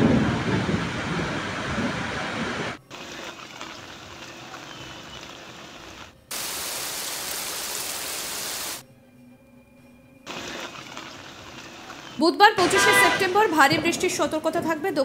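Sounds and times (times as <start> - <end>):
heavy rain hissing: 0.0 - 8.8
rain falling on water: 2.9 - 8.8, 10.3 - 12.2.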